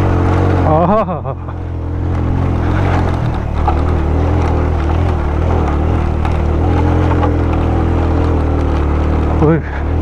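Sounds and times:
motorcycle engine under load: 0.0s - 10.0s.

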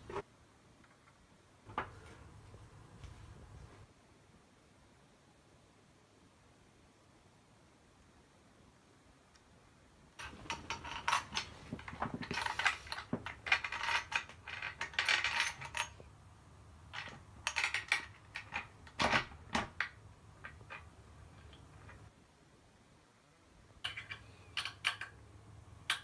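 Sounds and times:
metal parts clinking and rattling: 10.2s - 16.0s, 16.9s - 22.0s.

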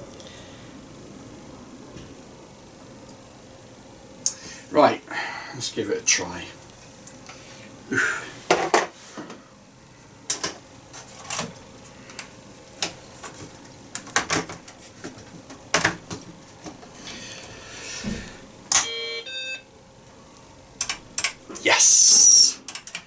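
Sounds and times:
computer power-on beep: 18.8s - 19.7s.

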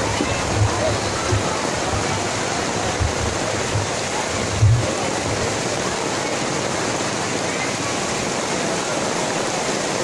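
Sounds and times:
heavy rain pouring: 0.0s - 10.0s
dull low thumps: 2.9s - 4.9s.

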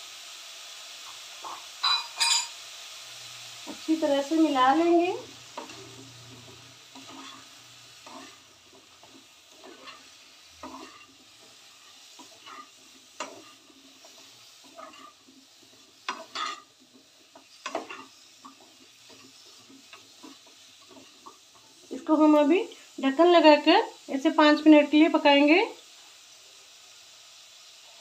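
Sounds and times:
hot oil sizzling: 0.0s - 28.0s
wooden spatula scraping metal pan: 3.7s - 22.3s.

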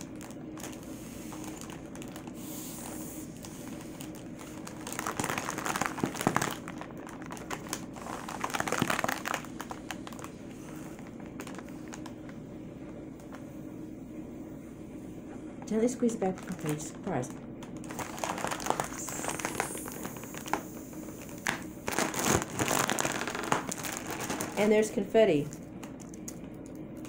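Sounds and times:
foil balloon crinkling: 0.0s - 12.4s, 16.2s - 26.8s.

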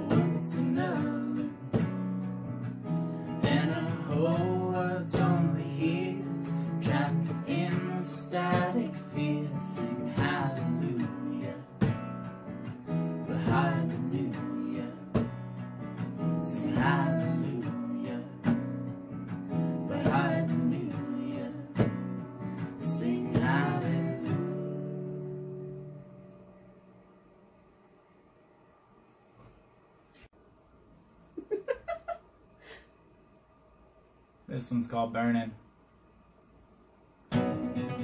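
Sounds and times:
woman singing: 0.0s - 1.9s, 3.4s - 11.9s, 13.2s - 15.3s, 16.4s - 18.6s, 19.8s - 21.9s, 22.7s - 25.2s
acoustic guitar strumming: 0.0s - 27.0s, 37.3s - 38.0s.

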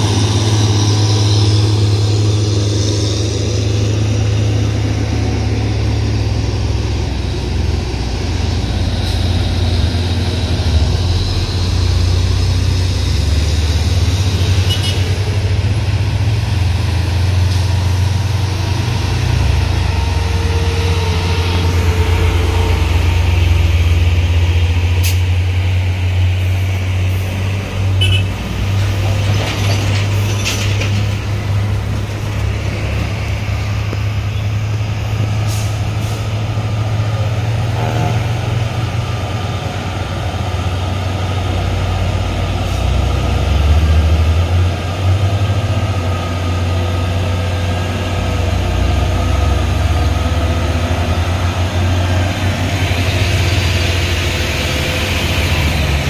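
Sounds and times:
diesel truck engines under load: 0.0s - 56.0s.

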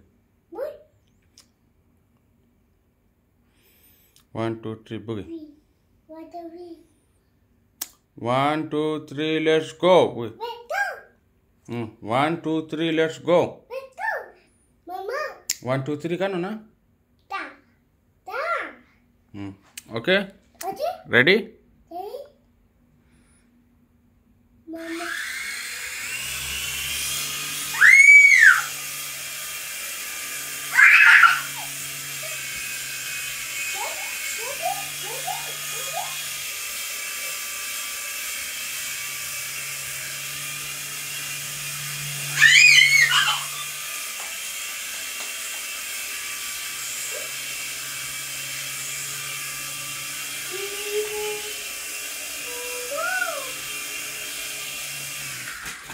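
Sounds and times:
toy helicopter motor whining: 24.7s - 55.9s
high squeals: 27.6s - 28.9s, 30.7s - 31.8s, 42.1s - 43.8s.

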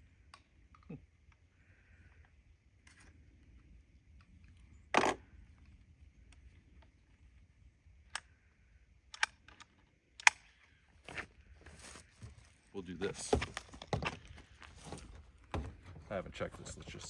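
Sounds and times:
rifle action clicking: 9.1s - 10.6s.

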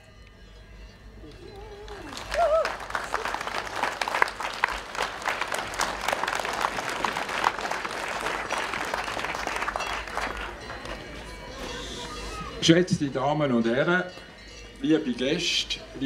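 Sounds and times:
audience applauding: 1.8s - 11.0s.

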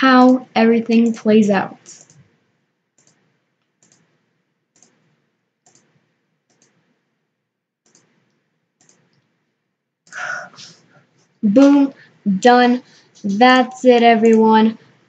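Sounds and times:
computer mouse clicks: 1.8s - 2.3s, 3.0s - 6.9s, 7.8s - 9.3s, 13.2s - 14.5s.

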